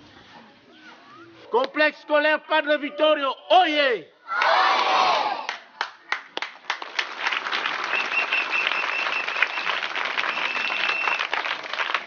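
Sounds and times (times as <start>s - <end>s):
shout: 4.3s - 5.5s
children clapping: 5.5s - 12.0s.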